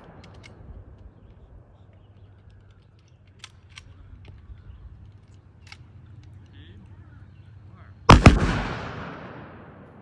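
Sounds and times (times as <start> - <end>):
rifle volley echo: 8.1 - 10.0.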